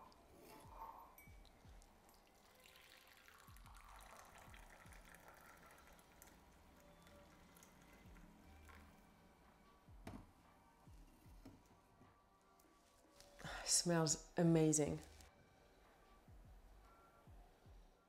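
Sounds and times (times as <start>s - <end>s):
coffee pouring into a mug: 1.2s - 9.1s.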